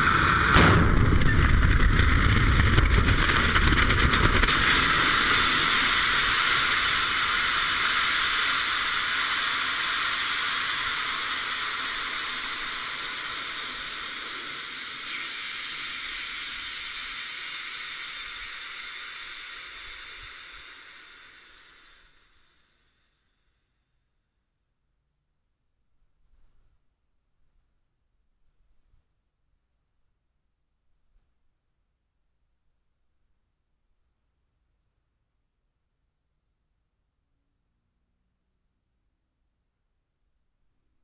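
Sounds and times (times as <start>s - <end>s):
rocket engine roaring: 0.0s - 22.6s
rocket engine hiss: 0.0s - 23.4s.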